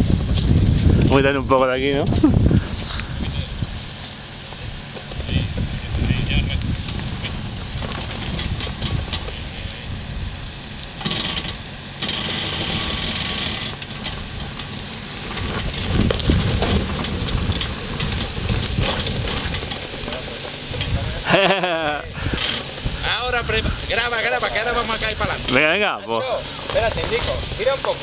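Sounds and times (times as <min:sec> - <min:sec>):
car engine idling: 0:00.0 - 0:28.0
tyres crackling on loose earth: 0:00.0 - 0:28.0.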